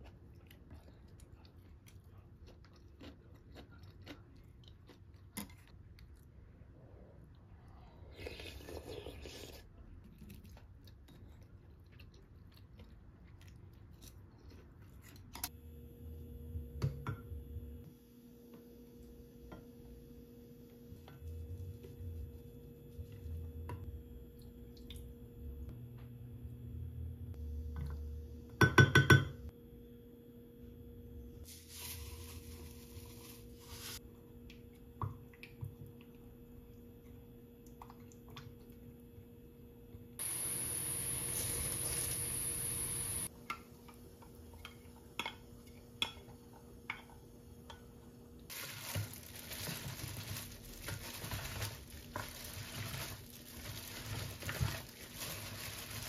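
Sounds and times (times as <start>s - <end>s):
steady low hum: 32.5s - 43.3s.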